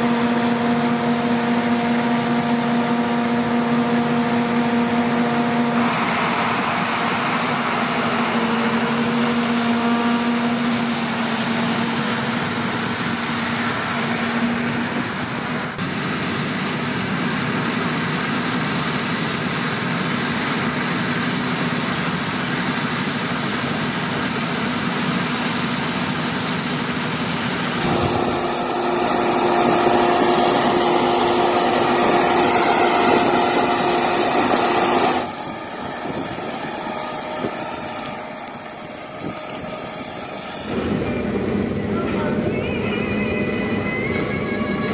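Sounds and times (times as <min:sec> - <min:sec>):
combine harvester threshing: 0:00.0 - 0:44.9
tractor diesel engine humming: 0:00.0 - 0:44.9
unloading auger running: 0:15.8 - 0:44.8.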